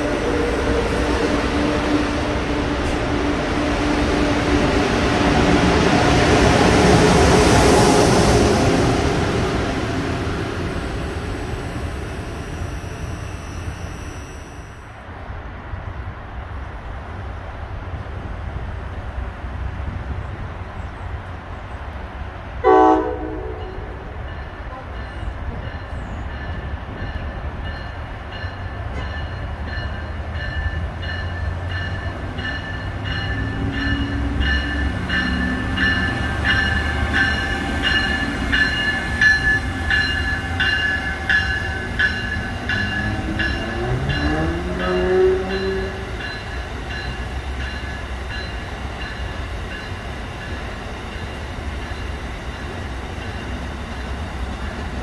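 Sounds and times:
train wheels rumbling on rail: 0.0s - 55.0s
high steady whine: 10.4s - 15.0s
rail clicks: 23.6s - 55.0s.

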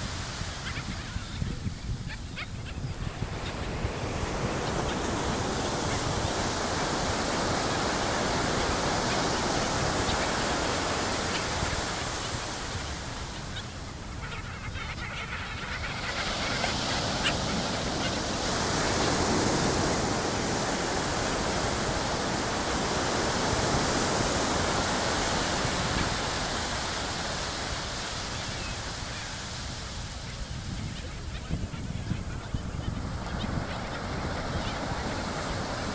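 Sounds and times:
surf washing onto beach: 2.9s - 14.2s, 15.6s - 35.9s.

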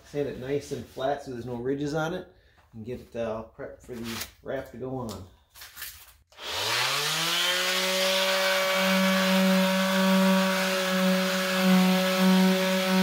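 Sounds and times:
electric sander motor whine: 6.4s - 13.0s.

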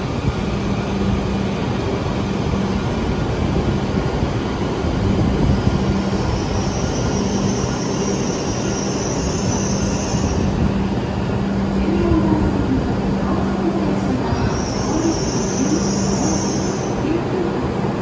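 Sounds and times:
train rumble and hum: 0.0s - 18.0s.

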